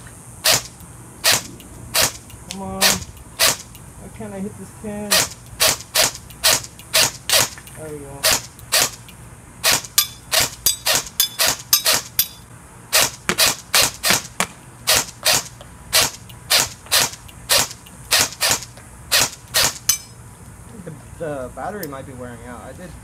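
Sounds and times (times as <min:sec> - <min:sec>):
airsoft gun single shots: 0:00.4 - 0:02.2, 0:02.8 - 0:03.7, 0:05.1 - 0:07.6, 0:08.2 - 0:09.0, 0:09.6 - 0:12.2, 0:12.9 - 0:20.0.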